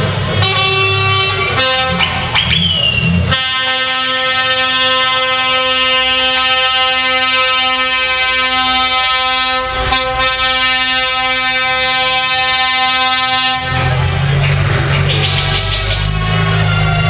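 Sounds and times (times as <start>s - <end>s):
lower-pitched horn: 0.3s - 2.3s, 3.0s - 14.3s
truck air horn: 0.3s - 14.3s, 15.0s - 17.0s.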